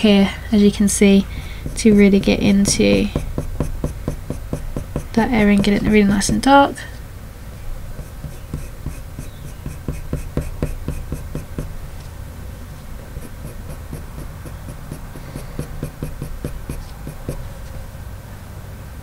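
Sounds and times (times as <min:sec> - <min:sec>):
pencil scratching on paper: 0:01.5 - 0:06.6, 0:07.9 - 0:11.8, 0:13.0 - 0:17.5.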